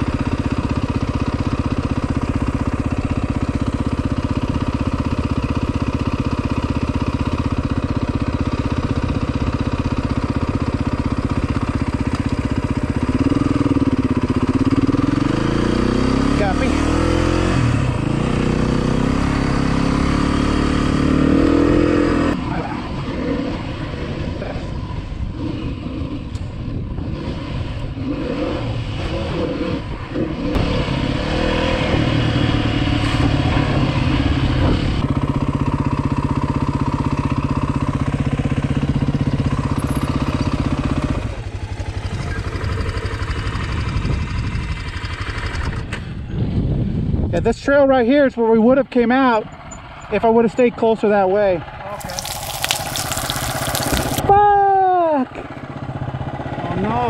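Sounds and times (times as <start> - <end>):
dirt bike engine revving: 14.6 - 22.3.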